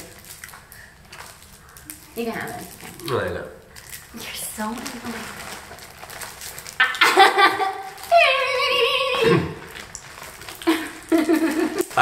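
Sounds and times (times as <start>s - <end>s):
person high-pitched squeal: 8.1s - 9.6s
person short vocal outburst: 9.1s - 9.7s.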